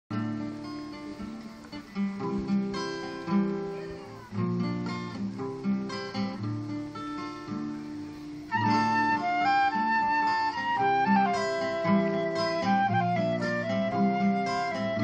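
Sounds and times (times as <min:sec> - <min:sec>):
acoustic guitar playing: 0:00.1 - 0:15.0
flute: 0:08.5 - 0:15.0.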